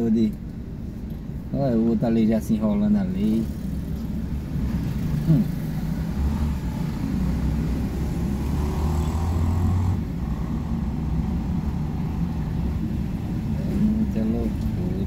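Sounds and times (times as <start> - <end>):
road traffic passing: 0.0 - 15.0
vehicle passing: 3.1 - 15.0.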